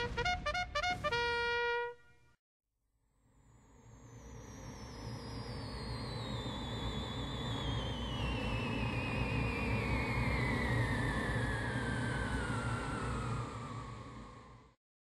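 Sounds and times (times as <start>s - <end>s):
whistle gliding down in pitch: 4.2s - 14.8s.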